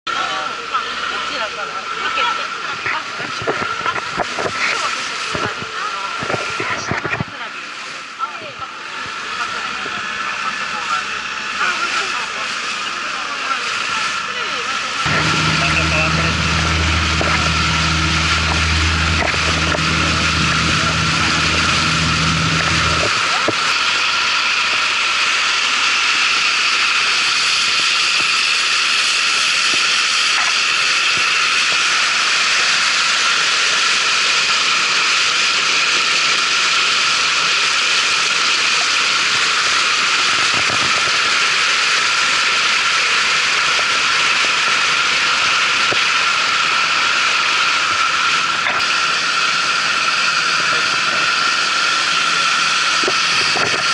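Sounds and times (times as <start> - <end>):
wind: 0.1 - 53.9
boat engine droning: 0.2 - 53.9
deeper hum: 15.0 - 24.0.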